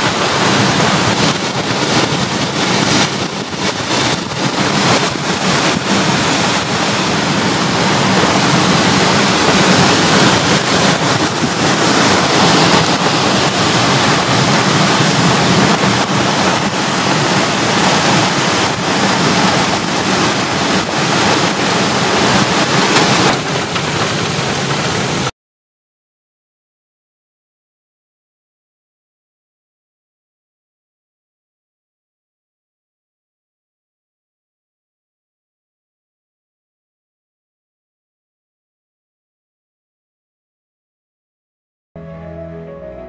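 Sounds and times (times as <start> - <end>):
rain hissing: 0.0 - 25.3
wind gusting through trees: 0.0 - 25.3.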